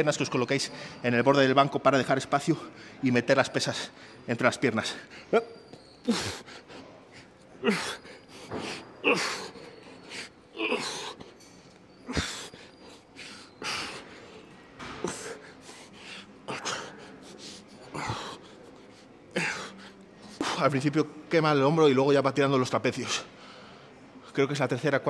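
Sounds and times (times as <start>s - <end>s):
man breathing hard with effort: 12.0s - 20.4s.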